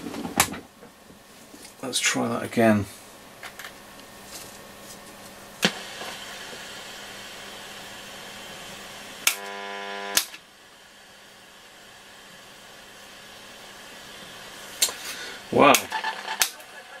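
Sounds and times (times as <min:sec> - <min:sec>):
buzzing tone: 0:09.2 - 0:10.3, 0:15.7 - 0:17.0.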